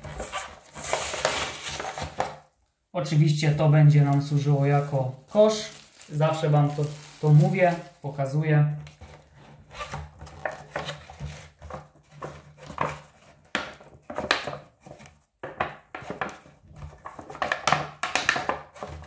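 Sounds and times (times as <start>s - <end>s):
cardboard scraping and rubbing: 0.0s - 2.4s, 8.9s - 15.2s.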